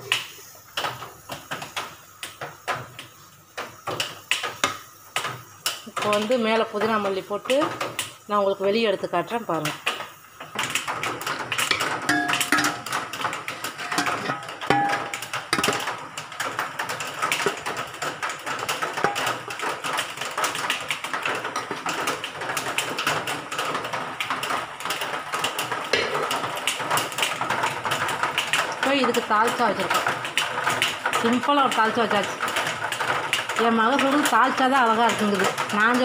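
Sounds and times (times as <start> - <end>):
metal ladle scraping pot: 11.6 - 15.9.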